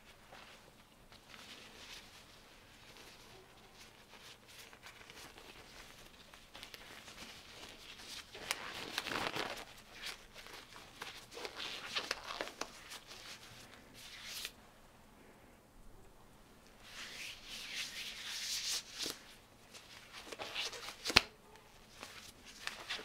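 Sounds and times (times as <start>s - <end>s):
rubber glove crinkling and rustling: 0.0s - 14.6s, 16.7s - 23.0s.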